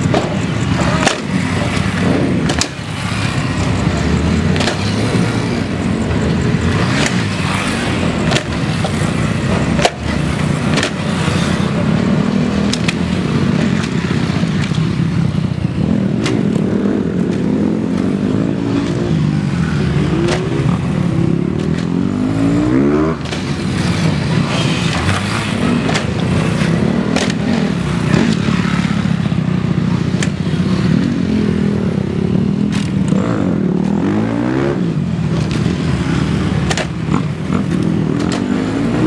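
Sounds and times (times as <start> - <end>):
motorcycle engine revving: 0.0 - 39.0
motorcycle engines passing: 0.0 - 39.0.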